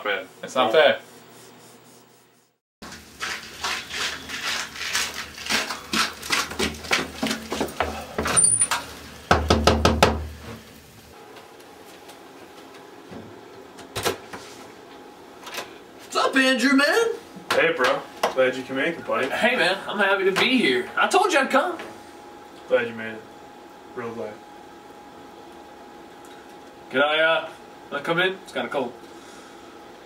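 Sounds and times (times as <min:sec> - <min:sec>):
knocking on a door: 0:09.3 - 0:10.4.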